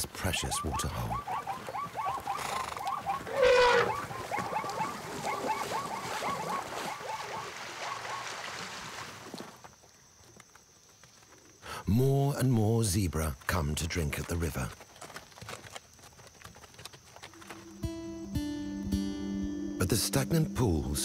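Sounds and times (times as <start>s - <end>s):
zebras barking: 0.3s - 8.3s
elephant trumpeting: 1.1s - 6.7s.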